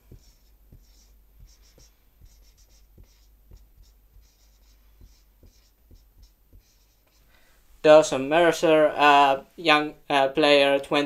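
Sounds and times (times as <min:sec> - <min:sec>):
marker writing on whiteboard: 0:00.0 - 0:07.4.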